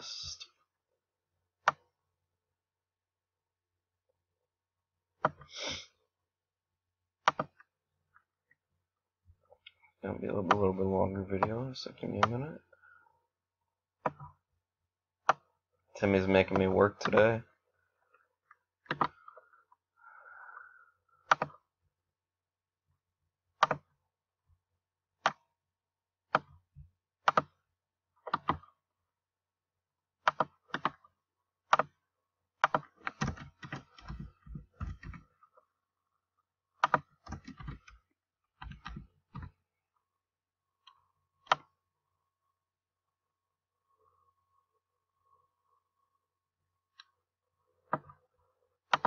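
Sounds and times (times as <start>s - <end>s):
computer mouse clicks: 1.6s - 1.8s, 7.2s - 7.7s, 18.9s - 19.5s, 21.2s - 21.6s, 23.6s - 23.9s, 27.3s - 27.6s, 28.3s - 28.6s, 30.3s - 31.0s, 31.7s - 32.0s, 32.6s - 35.3s, 36.8s - 38.0s, 38.6s - 39.6s, 40.9s - 41.7s
computer keyboard keystrokes: 21.3s - 21.6s, 32.6s - 35.2s, 36.8s - 38.0s, 38.6s - 39.5s.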